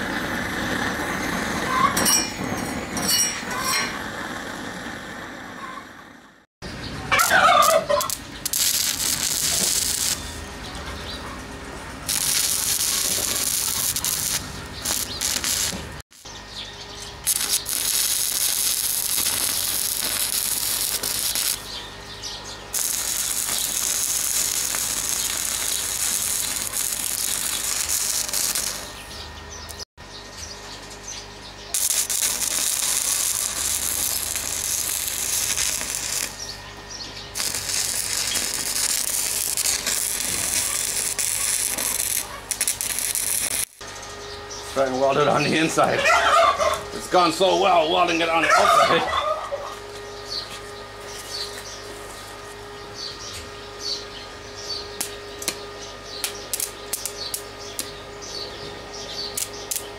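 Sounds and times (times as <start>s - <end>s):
welding arc crackling: 0.0s - 5.5s, 6.3s - 11.2s, 11.9s - 16.4s, 17.0s - 21.8s, 22.6s - 29.9s, 31.7s - 44.1s, 54.9s - 59.9s.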